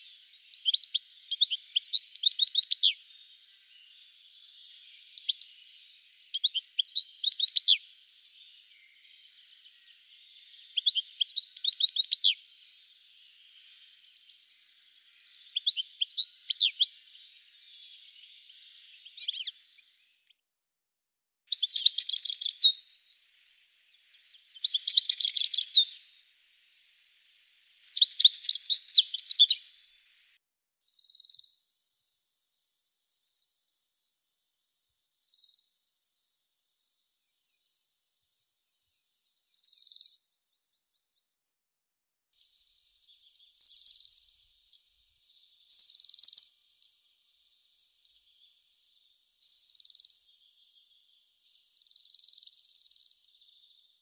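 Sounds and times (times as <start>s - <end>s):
finch twittering song: 0.0s - 20.3s, 21.5s - 26.3s, 26.9s - 30.1s, 39.4s - 40.5s, 42.4s - 46.5s, 47.6s - 54.0s
high thin trilled bird calls: 0.0s - 20.3s, 21.5s - 30.2s, 30.8s - 32.0s, 33.1s - 33.8s, 35.2s - 36.1s, 37.4s - 38.0s, 39.4s - 40.6s, 42.4s - 46.5s, 47.6s - 48.8s, 49.4s - 54.0s.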